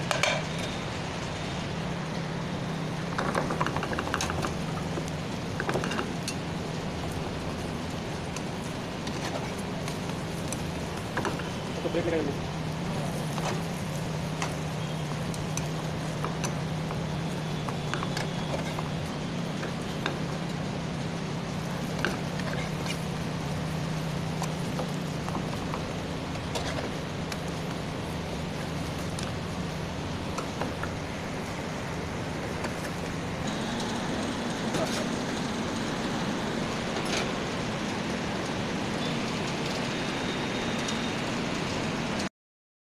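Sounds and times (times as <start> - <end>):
steady low hum: 0.0 - 42.2
steady rushing noise: 0.0 - 42.3.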